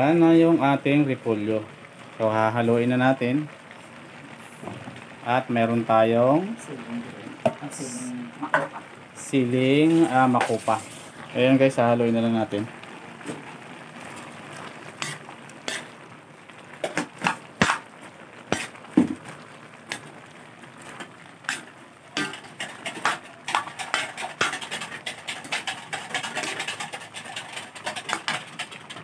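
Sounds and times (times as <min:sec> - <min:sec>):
metal ladle scraping a wok: 0:09.8 - 0:11.2, 0:14.9 - 0:16.0, 0:21.5 - 0:29.0.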